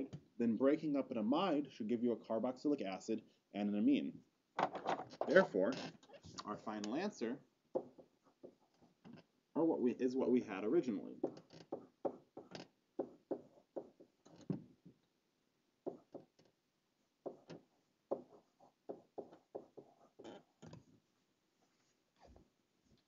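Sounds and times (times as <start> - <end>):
stylus tapping on a tablet: 7.7 - 8.6, 11.2 - 14.6, 15.8 - 16.3, 17.2 - 19.9.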